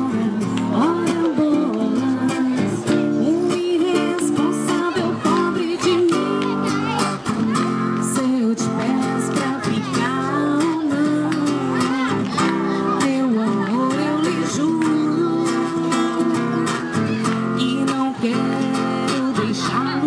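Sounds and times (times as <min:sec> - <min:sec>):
woman singing into microphone: 0:00.0 - 0:07.0, 0:07.6 - 0:20.0
acoustic guitar: 0:00.0 - 0:20.0.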